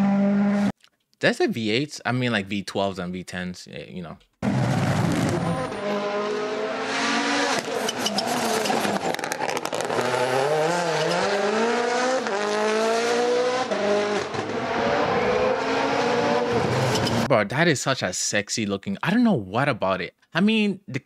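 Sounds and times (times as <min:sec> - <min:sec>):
rally car engines revving: 0:00.0 - 0:00.7, 0:04.4 - 0:17.3.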